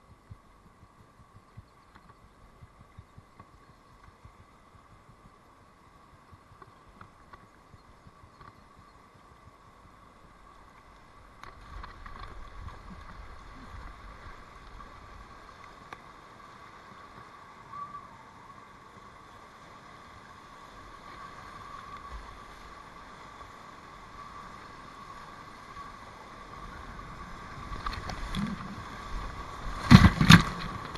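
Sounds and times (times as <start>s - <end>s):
river water rushing: 18.5s - 30.9s
kayak paddle strokes: 24.0s - 30.9s.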